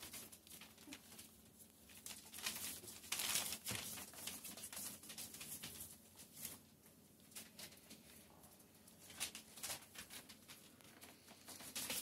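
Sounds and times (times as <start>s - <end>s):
newspaper rustling under paws: 0.0s - 8.0s.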